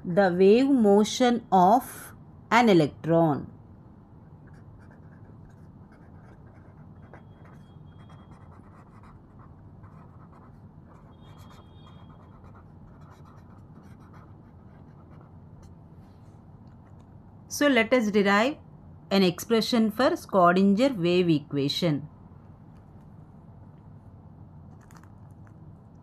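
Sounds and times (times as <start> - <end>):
marker pen writing on paper: 4.4 - 15.8
marker pen squeaks: 11.0 - 12.5.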